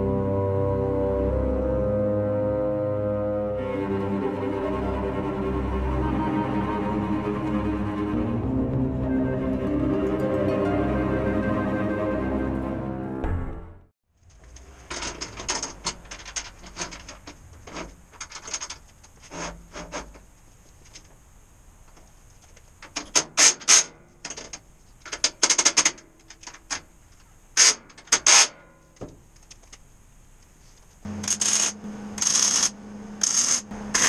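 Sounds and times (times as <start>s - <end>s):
tools scraping clicking and rattling: 14.3s - 21.1s, 22.3s - 29.8s.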